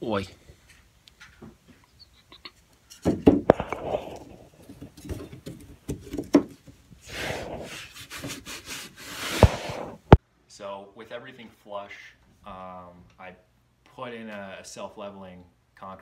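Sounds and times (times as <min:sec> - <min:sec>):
hand rubbing and scraping wood: 0:00.5 - 0:10.2.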